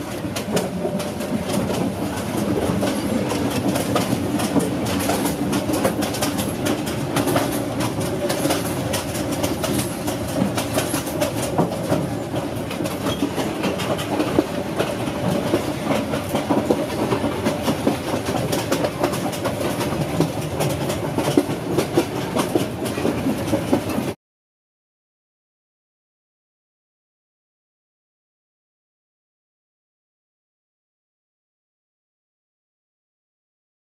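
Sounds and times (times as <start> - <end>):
train carriage rumbling: 0.0 - 24.2
wheels clattering over rail joints: 0.0 - 24.2.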